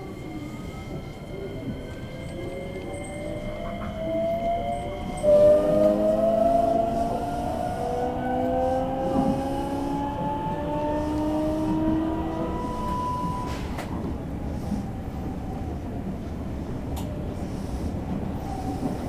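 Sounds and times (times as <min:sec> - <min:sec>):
wheels rumbling on rails: 0:00.0 - 0:19.0
train motor whine rising: 0:03.8 - 0:13.9.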